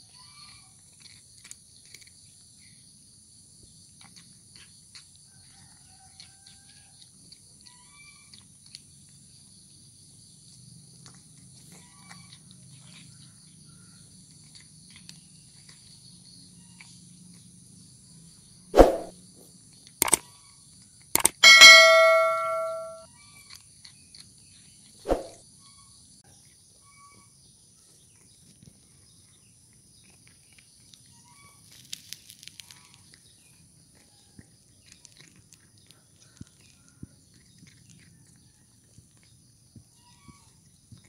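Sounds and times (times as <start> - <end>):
cat chewing dry kibble: 0.1 - 17.5, 27.9 - 39.8
bell-like chime: 21.4 - 23.0.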